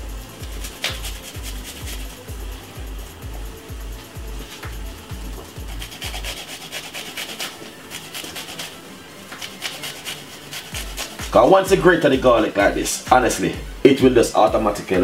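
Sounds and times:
garlic rasping on a grater: 0.4s - 2.2s, 5.6s - 11.4s.

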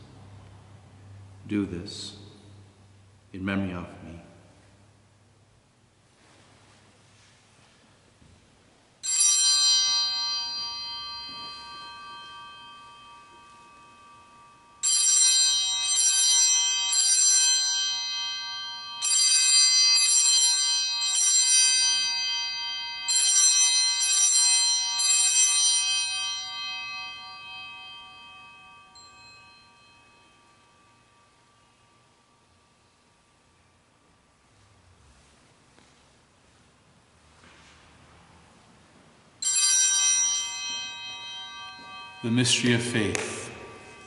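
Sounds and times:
altar bell ringing: 9.0s - 34.7s, 39.3s - 44.0s.

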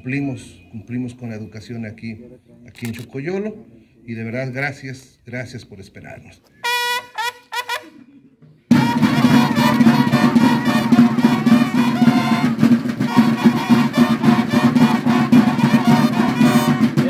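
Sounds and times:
brass horns sustained notes: 8.7s - 17.0s
field drums beating: 8.7s - 17.0s.

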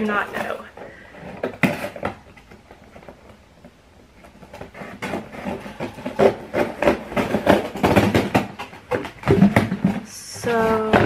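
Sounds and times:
cardboard scraping and rubbing: 4.1s - 11.0s.

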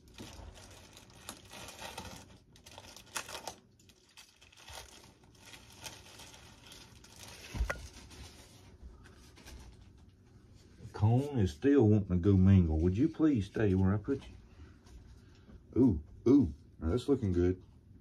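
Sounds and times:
plastic bag crinkling: 0.0s - 10.2s.

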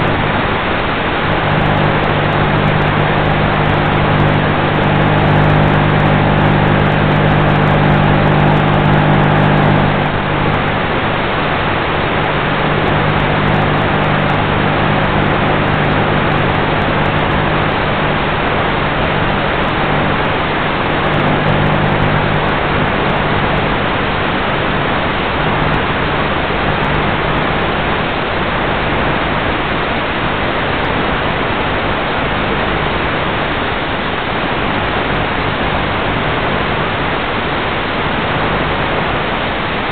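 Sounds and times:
low even hum: 0.0s - 28.1s.

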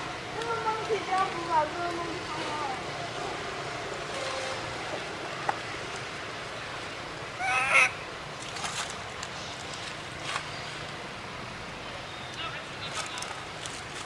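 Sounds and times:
baby monkey crying: 7.4s - 8.0s.

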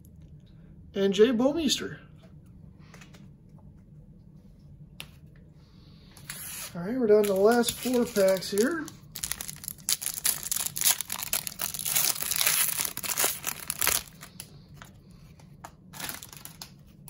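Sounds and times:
foil wrapper tearing and crinkling: 6.4s - 14.5s, 15.9s - 16.8s.

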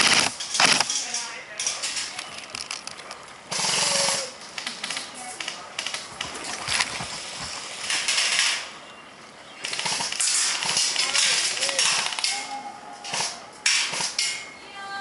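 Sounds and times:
airsoft rifles firing bursts: 3.5s - 4.4s, 9.6s - 14.4s
clicks of single shots: 9.6s - 14.4s.

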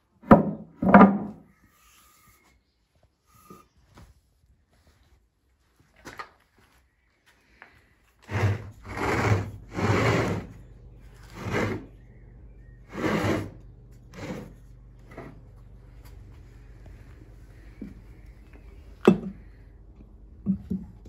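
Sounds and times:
low steady hum: 7.8s - 21.0s
stone scraping on wood: 8.3s - 10.6s, 11.2s - 11.9s, 12.9s - 15.4s.

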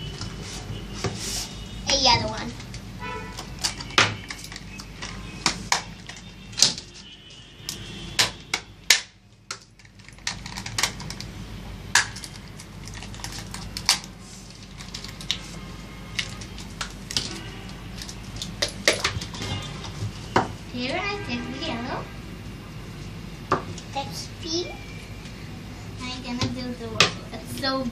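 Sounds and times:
plastic cans and tools clicking: 9.5s - 11.3s.

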